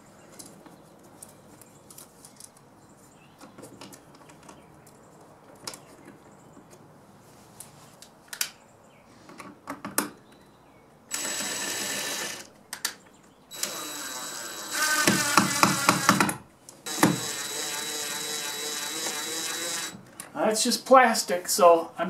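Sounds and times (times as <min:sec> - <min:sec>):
cordless drill driving screw: 0:11.1 - 0:12.5, 0:13.5 - 0:16.3, 0:16.9 - 0:20.0.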